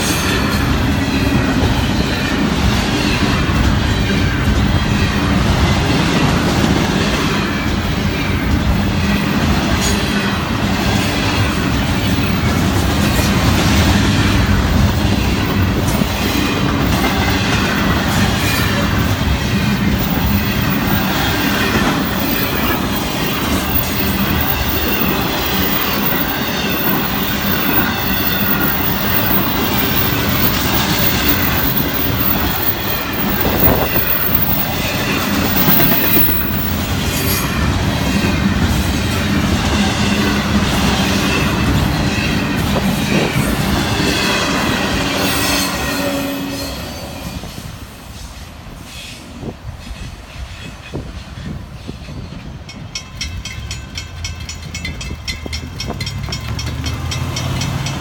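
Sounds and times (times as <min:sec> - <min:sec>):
train wheels clacking over rail joints: 0:00.0 - 0:45.9, 0:49.8 - 0:58.0
freight cars rattling: 0:13.4 - 0:37.0
high wheel squeal: 0:16.3 - 0:37.7.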